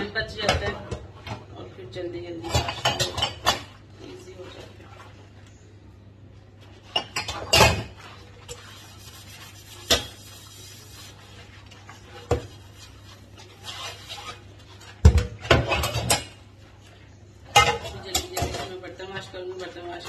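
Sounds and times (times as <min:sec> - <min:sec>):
dishes clinking and knocking: 0:02.4 - 0:03.8, 0:06.8 - 0:08.0, 0:15.0 - 0:16.4, 0:17.5 - 0:19.2.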